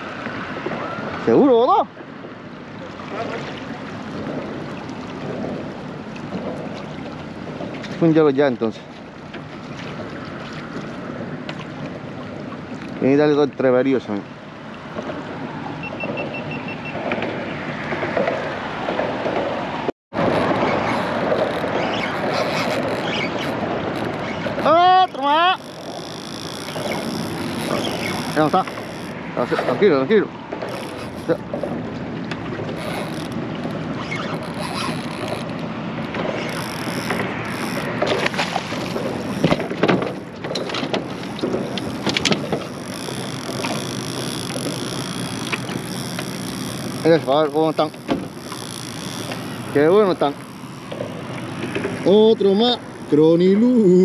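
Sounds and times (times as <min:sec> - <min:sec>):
water noise: 0:00.0 - 0:54.0
wind: 0:00.0 - 0:54.0
faint short beeps: 0:15.8 - 0:17.0
fishing reel clicking: 0:25.6 - 0:29.8, 0:30.6 - 0:31.7, 0:36.4 - 0:38.3, 0:41.0 - 0:53.5.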